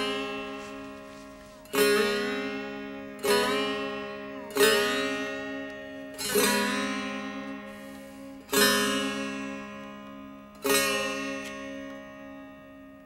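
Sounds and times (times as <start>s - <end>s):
lute chords strummed: 0.0s - 13.0s.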